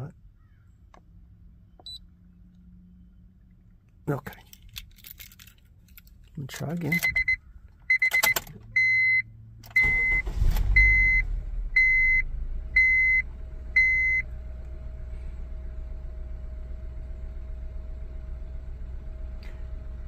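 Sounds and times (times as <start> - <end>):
car engine cranking and idling: 0.2 - 20.0
short electronic beeps: 6.9 - 9.2, 9.8 - 12.2
low hum: 9.7 - 20.0.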